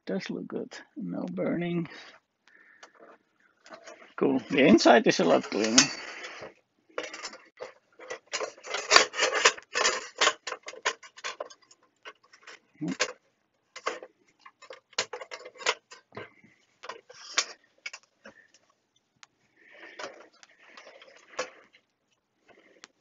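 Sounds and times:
metal plates clicking and scraping: 0:02.8 - 0:13.2, 0:13.8 - 0:18.6, 0:19.6 - 0:21.8.

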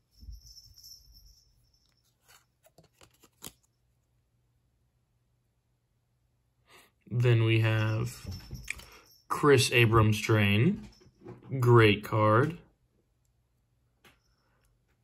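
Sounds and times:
trading cards sliding and rubbing: 0:01.8 - 0:03.7.

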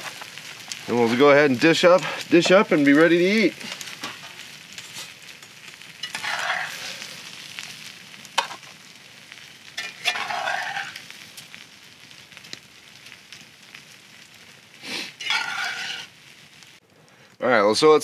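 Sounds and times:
spatula scraping skillet: 0:00.0 - 0:07.7, 0:08.4 - 0:11.1, 0:14.8 - 0:16.2
faint food sizzle: 0:00.0 - 0:18.0.

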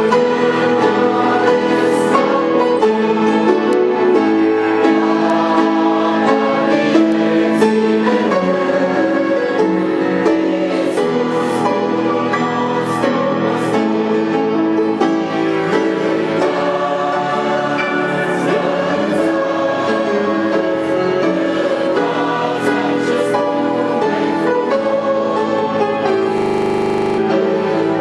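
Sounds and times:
congregation singing a hymn: 0:00.0 - 0:28.0
grand piano accompaniment: 0:00.0 - 0:28.0.

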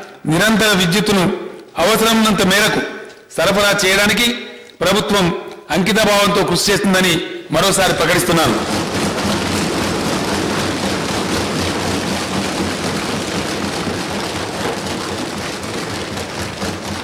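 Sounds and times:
people thumping desks: 0:08.0 - 0:17.0.

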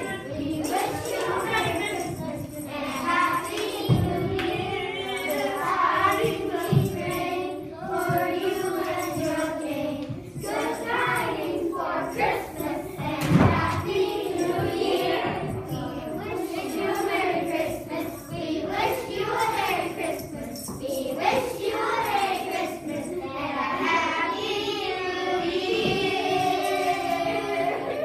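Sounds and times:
children singing: 0:00.0 - 0:28.0.

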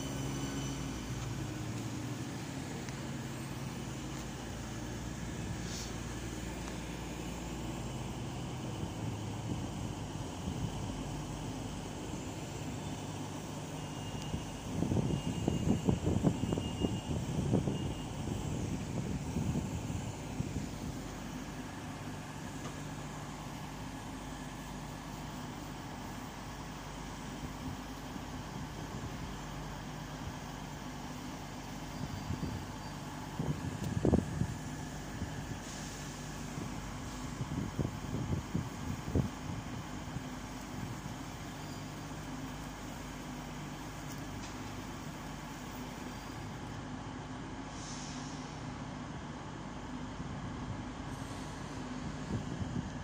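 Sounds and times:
train diesel engines humming: 0:00.0 - 0:53.0.

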